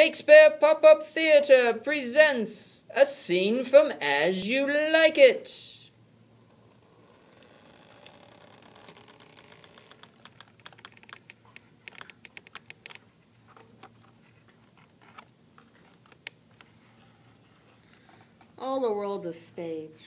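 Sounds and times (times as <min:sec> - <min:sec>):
pop-up book clicking and crackling: 0:07.4 - 0:14.0, 0:14.7 - 0:16.7.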